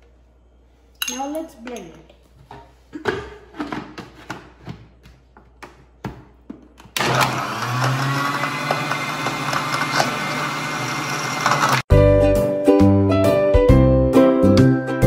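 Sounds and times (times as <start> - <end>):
blender motor running: 7.0 - 11.9.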